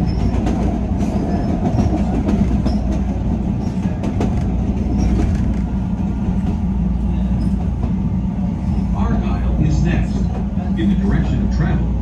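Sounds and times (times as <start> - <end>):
train wheel clicks: 0.0 - 5.8
train rumbling on rails: 0.0 - 12.0.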